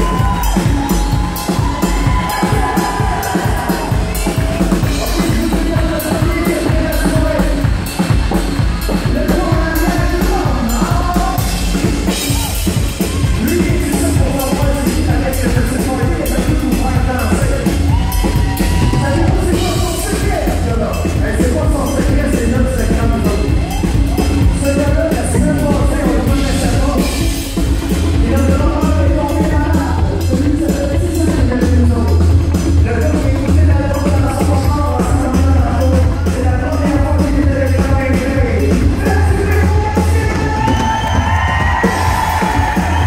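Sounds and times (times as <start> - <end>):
country band playing: 0.0 - 43.0
drum kit beat: 0.0 - 43.0.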